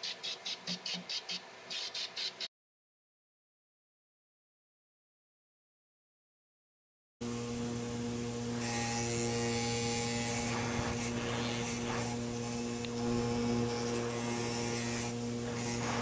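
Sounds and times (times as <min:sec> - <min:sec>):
bench grinder motor humming: 0:07.2 - 0:16.0.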